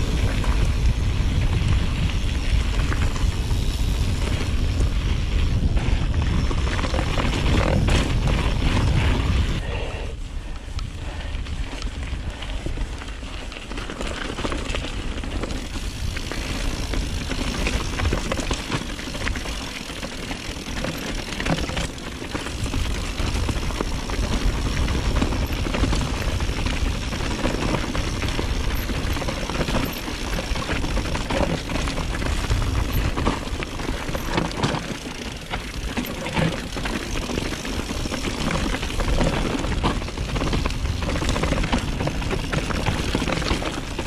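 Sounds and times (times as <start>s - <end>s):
bike rattling and knocking: 0.0s - 9.7s, 11.0s - 44.0s
wind rumble on microphone: 0.0s - 44.0s
tyre noise: 13.8s - 44.0s.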